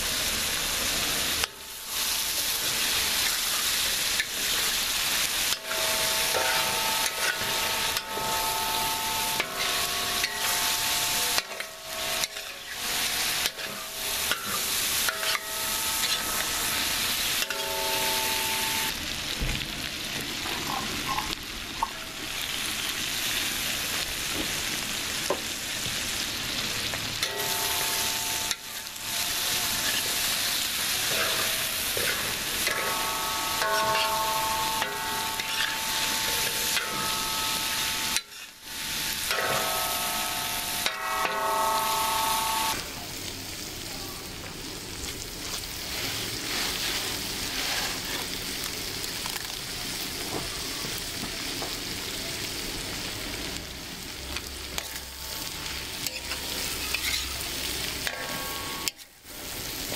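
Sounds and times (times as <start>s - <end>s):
food sizzling in oil: 0.0s - 59.9s
metal spatula scraping steel pan: 5.4s - 18.9s, 27.2s - 42.0s, 45.8s - 48.4s, 54.8s - 59.2s
steady humming tones: 5.5s - 19.0s, 27.2s - 43.5s.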